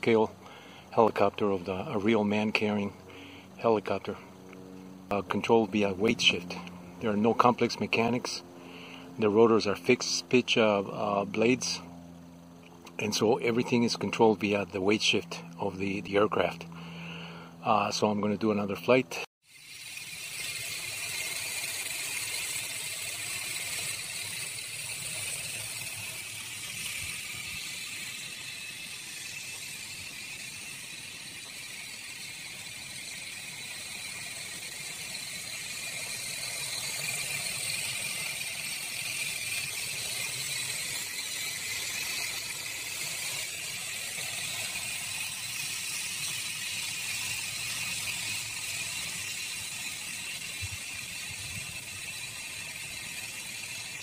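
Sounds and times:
model helicopter whine: 0.0 - 54.0
wind noise on microphone: 50.6 - 51.9.

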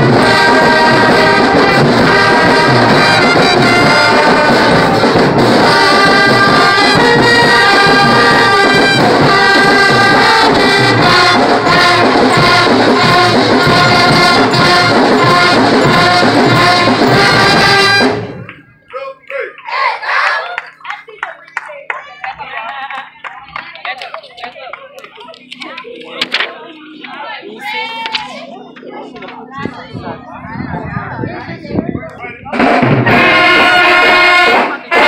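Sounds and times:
marching band brass playing: 0.0 - 20.4, 32.5 - 35.0.

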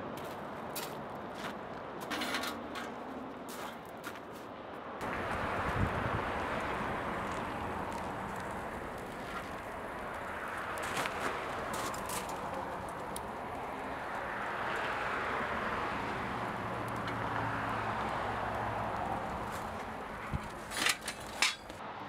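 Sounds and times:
steady rushing noise: 5.0 - 21.8
sharp metal clanks: 20.7 - 21.8.

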